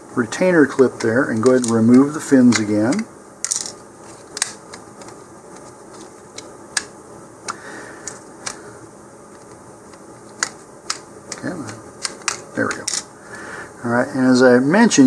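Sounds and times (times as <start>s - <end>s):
plastic parts clicking: 0.7s - 6.9s, 7.5s - 8.6s, 9.3s - 13.1s.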